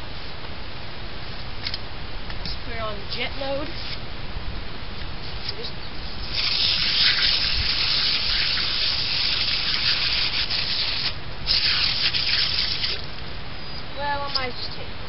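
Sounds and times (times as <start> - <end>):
hose nozzle spraying water: 6.2 - 13.1.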